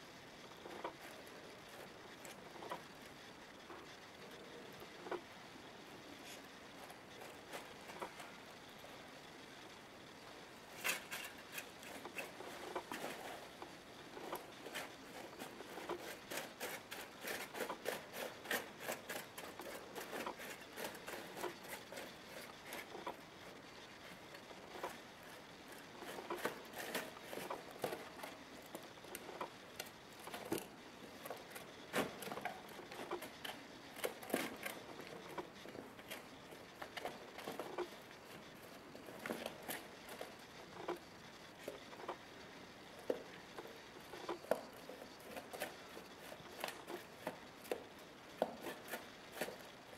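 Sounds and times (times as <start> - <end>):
dry straw and cardboard rustling: 10.5 - 41.0, 43.0 - 49.9.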